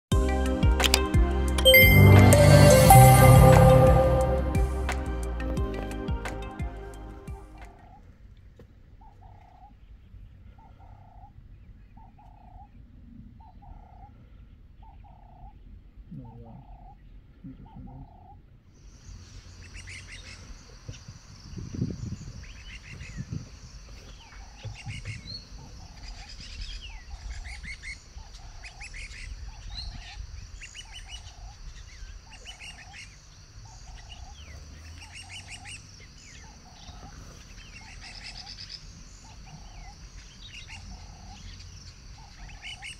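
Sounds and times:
low rumble: 0.1s - 7.8s
small birds chirping: 8.9s - 42.9s.

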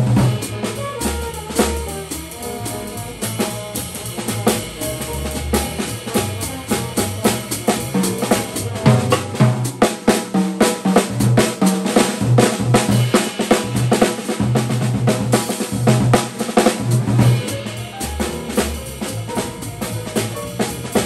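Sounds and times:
upright bass notes: 0.0s - 9.7s, 16.8s - 21.0s
cymbal and snare strikes: 0.0s - 21.0s
jazz drum kit played with sticks: 0.0s - 21.0s.

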